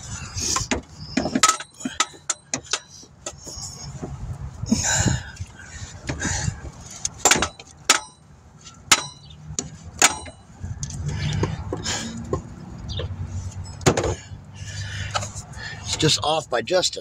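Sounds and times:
low rumbling handling noise: 0.0s - 16.2s
metallic clinks and knocks: 0.6s - 3.6s, 7.2s - 11.8s.

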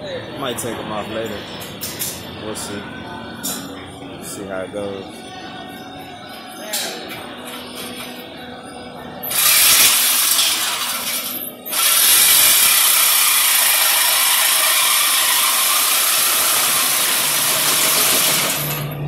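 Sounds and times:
power tool cutting metal pipe: 9.3s - 18.9s.

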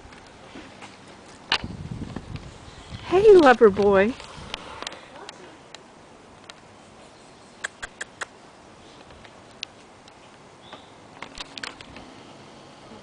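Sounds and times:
low outdoor background: 0.0s - 13.0s
sharp clicks: 7.6s - 8.3s.

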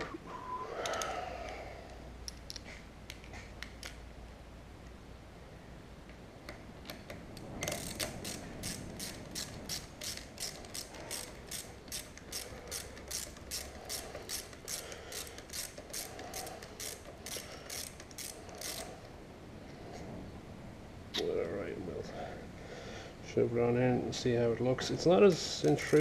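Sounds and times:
ratchet wrench clicking: 7.6s - 19.0s, 25.3s - 26.0s.

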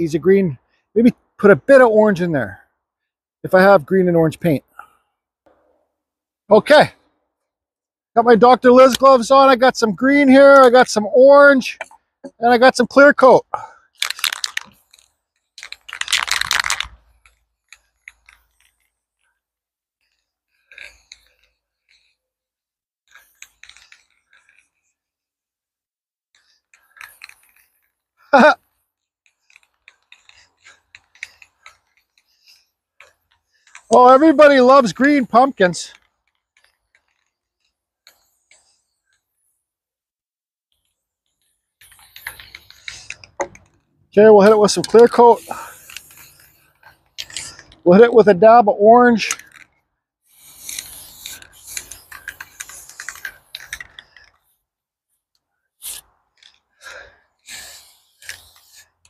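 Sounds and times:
aerosol spray can hissing: 45.3s - 47.5s, 50.3s - 53.7s, 55.8s - 56.0s, 57.4s - 58.8s.

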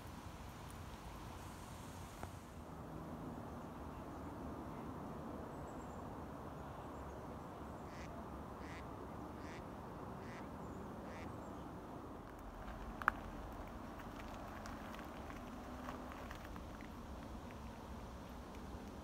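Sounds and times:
low background noise: 0.0s - 19.0s
duck quacking: 7.9s - 8.8s, 9.4s - 9.6s, 10.2s - 10.5s, 11.1s - 11.3s.

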